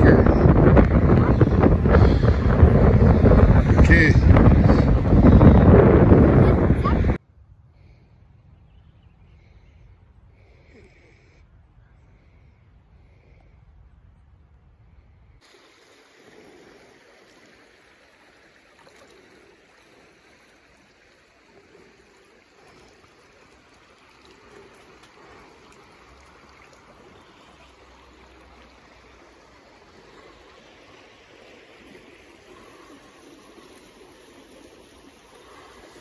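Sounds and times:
creek running over rocks: 0:00.0 - 0:07.1, 0:15.4 - 0:36.0.

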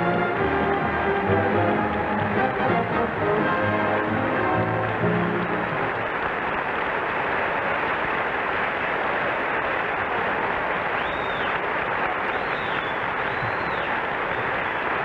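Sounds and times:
orchestra music: 0:00.0 - 0:06.3
large audience applauding: 0:00.0 - 0:15.0.

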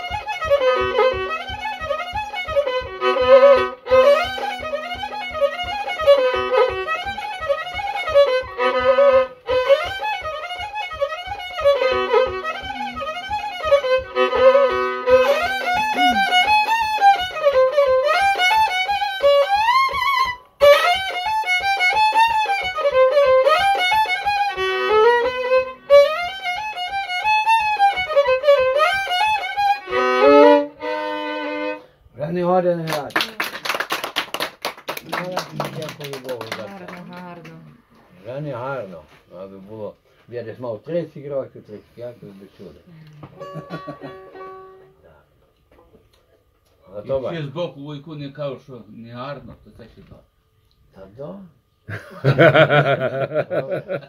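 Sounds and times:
solo violin melody: 0:00.0 - 0:32.0, 0:41.7 - 0:45.0.

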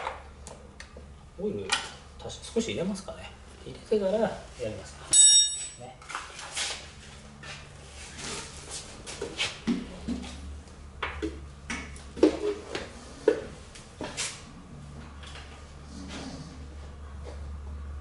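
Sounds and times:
hand tools clicking and clinking: 0:05.1 - 0:05.8.

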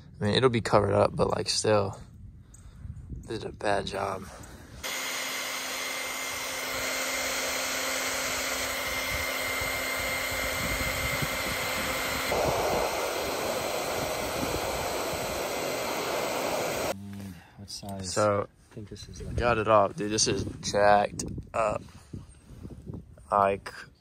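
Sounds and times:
hair dryer running: 0:04.8 - 0:17.0.

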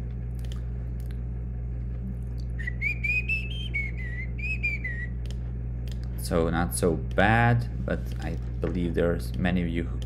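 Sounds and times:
low hum: 0:00.0 - 0:10.0
person whistling a long note: 0:02.6 - 0:05.1
click: 0:05.2 - 0:06.1.

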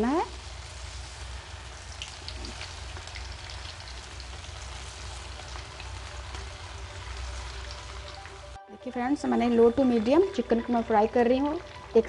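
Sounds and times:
chicken deep-frying in hot oil: 0:00.0 - 0:12.0
small pops and crackles of oil: 0:01.9 - 0:06.5.

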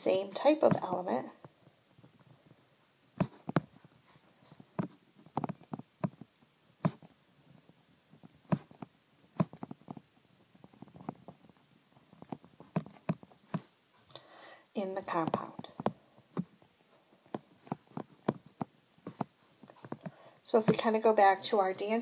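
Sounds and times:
stylus tapping on screen: 0:03.2 - 0:03.8, 0:04.7 - 0:07.1, 0:08.2 - 0:11.4, 0:15.2 - 0:16.6, 0:17.2 - 0:20.8.

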